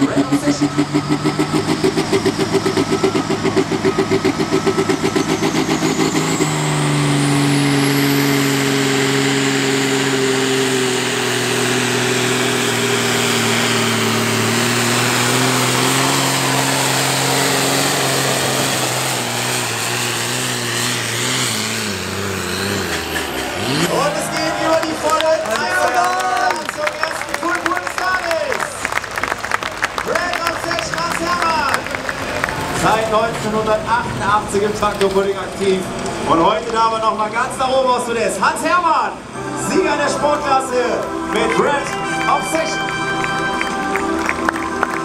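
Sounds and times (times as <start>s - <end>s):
high turbo whine: 0.0s - 29.0s
tractor engine under heavy load: 0.0s - 45.0s.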